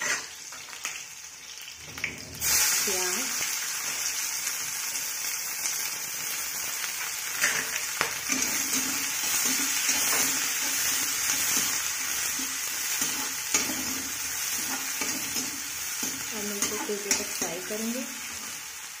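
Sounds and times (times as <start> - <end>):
spatula scraping pan: 0.0 - 0.3, 7.4 - 18.5
onion sizzling in hot oil: 0.0 - 19.0.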